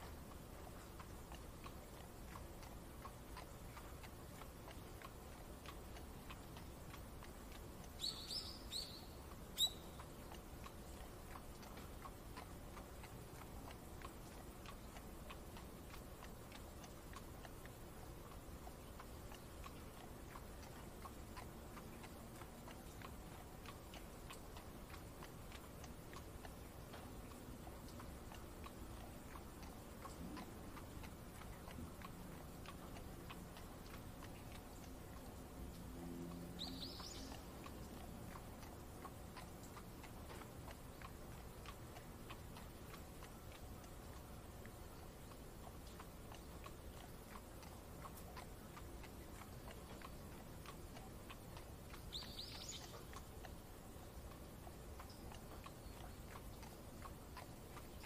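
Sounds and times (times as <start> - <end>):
faint regular ticking: 0.0 - 58.0
soft rain: 0.0 - 58.0
bird chirps: 8.0 - 10.0, 36.6 - 37.4, 52.1 - 53.0.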